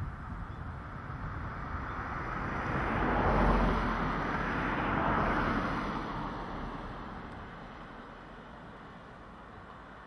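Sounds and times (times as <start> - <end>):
vehicle passing: 0.8 - 8.4.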